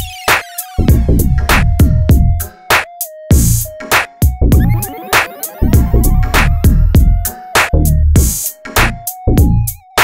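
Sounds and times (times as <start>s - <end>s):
electronic music with drum-machine beat: 3.0s - 9.6s.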